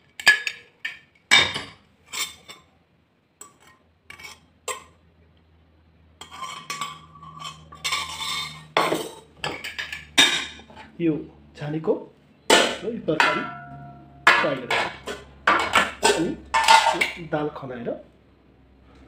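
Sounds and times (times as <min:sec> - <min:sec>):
low steady hum: 0:01.2 - 0:19.0
spoon clattering in pot: 0:12.5 - 0:17.2.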